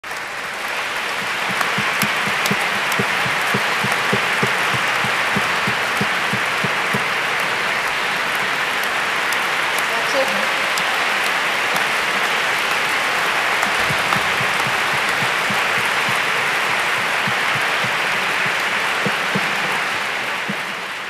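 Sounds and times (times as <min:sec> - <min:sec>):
large audience applauding: 0:00.0 - 0:21.0
low thumping beat: 0:01.2 - 0:07.3, 0:13.6 - 0:21.0.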